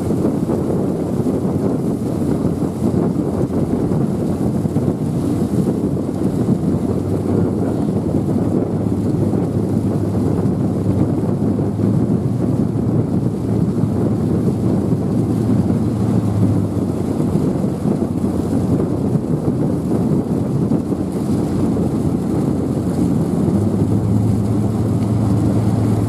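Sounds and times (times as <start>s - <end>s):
ferry engines rumbling: 0.0s - 26.0s
wind noise on microphone: 0.0s - 26.0s.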